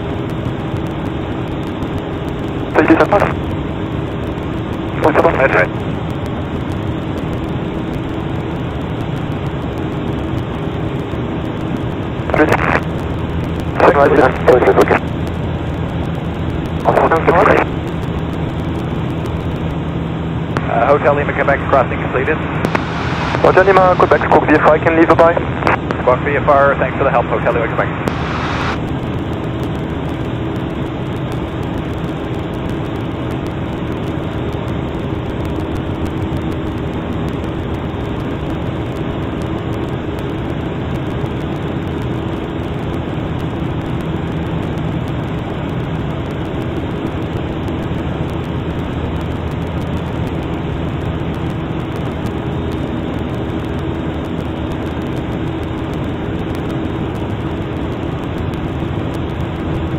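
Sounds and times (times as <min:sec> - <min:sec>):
propeller plane engine droning: 0:00.0 - 0:59.9.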